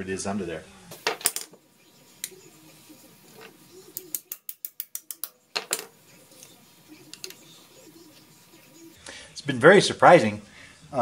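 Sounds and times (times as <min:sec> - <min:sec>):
hand ratchet clicking: 0:04.0 - 0:05.4.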